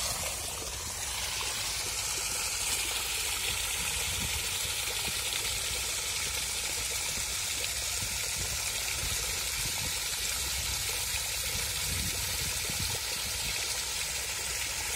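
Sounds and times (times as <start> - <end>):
water rushing from split pipe: 0.0 - 14.9.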